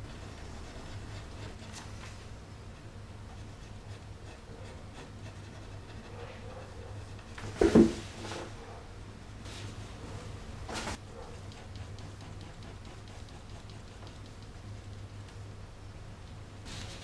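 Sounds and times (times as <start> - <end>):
pencil scratching on paper: 0.0 - 2.0, 3.3 - 7.8, 10.9 - 15.0
steady low hum: 0.0 - 17.0.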